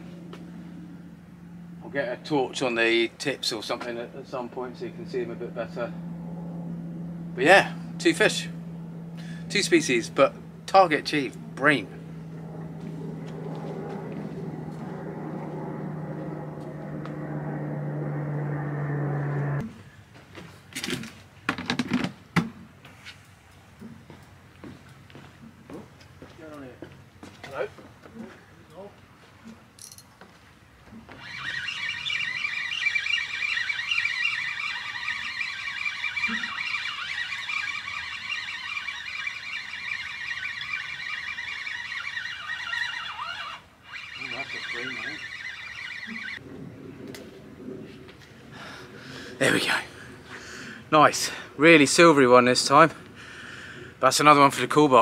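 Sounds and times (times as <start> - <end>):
low engine drone: 0.0 - 20.0, 31.0 - 54.8
fishing reel whirring: 31.1 - 46.4.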